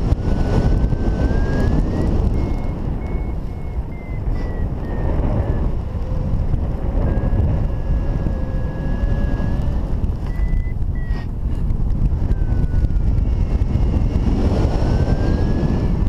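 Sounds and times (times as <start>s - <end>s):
wind buffeting microphone: 0.0s - 16.0s
high electronic beeps: 0.8s - 5.8s, 10.2s - 11.3s.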